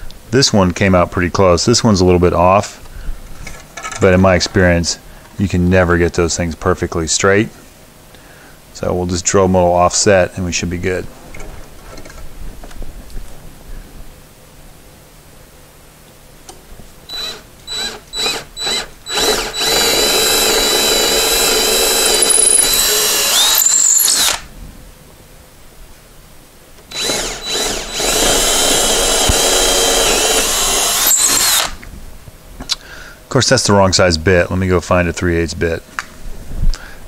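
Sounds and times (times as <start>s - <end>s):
cordless drill boring into wood: 17.1s - 24.5s, 26.9s - 31.8s.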